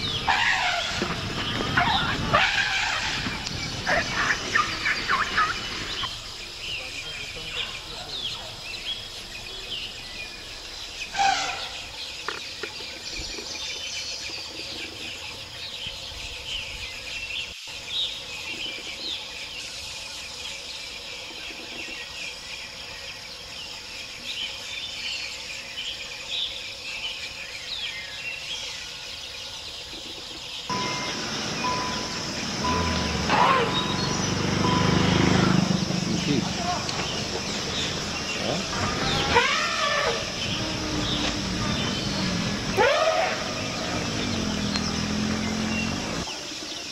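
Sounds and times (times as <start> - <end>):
bird chirps: 0.0 - 20.4, 21.0 - 46.9
steady high tone: 30.7 - 36.7.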